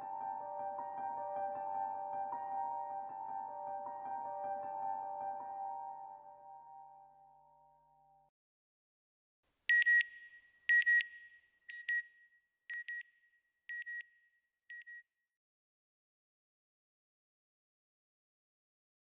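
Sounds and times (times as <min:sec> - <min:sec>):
soft music: 0:00.0 - 0:08.3.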